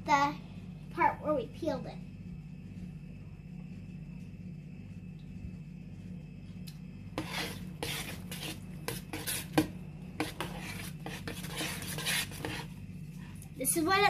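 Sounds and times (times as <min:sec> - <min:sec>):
spoon scraping plastic bowl: 0:07.1 - 0:12.8.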